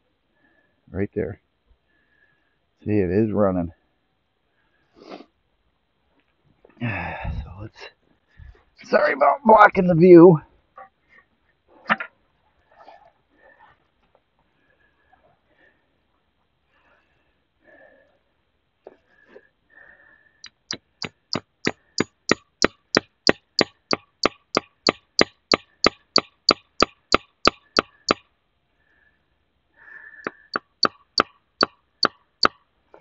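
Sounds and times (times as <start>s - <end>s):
hammer tapping metal spile: 20.4s - 28.2s.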